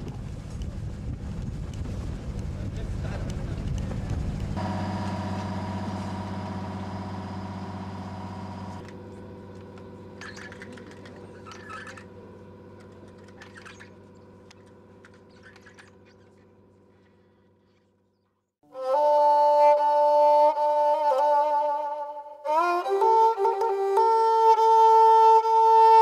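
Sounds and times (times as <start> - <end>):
motorboat engine humming: 0.0 - 18.2.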